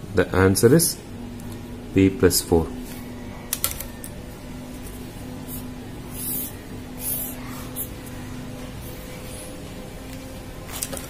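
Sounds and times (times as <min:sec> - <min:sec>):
faint steady hum: 0:00.0 - 0:11.0
highlighter rubbing on paper: 0:04.9 - 0:08.2.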